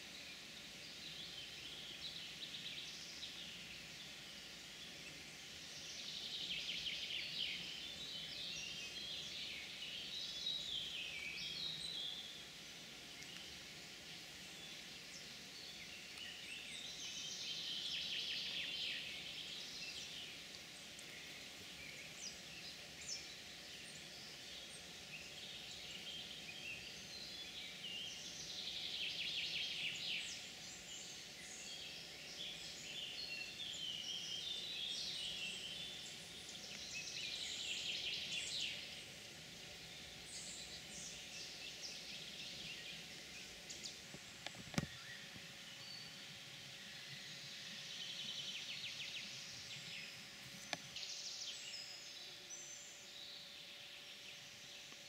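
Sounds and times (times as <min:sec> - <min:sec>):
faint steady hum: 0:00.0 - 0:55.0
songbirds singing: 0:00.0 - 0:55.0.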